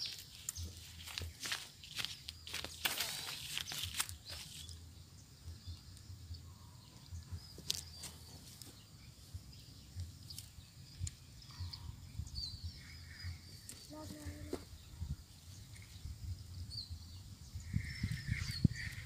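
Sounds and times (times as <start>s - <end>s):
faint bird chirps: 0.0s - 19.0s
wind rumble on microphone: 8.8s - 19.0s.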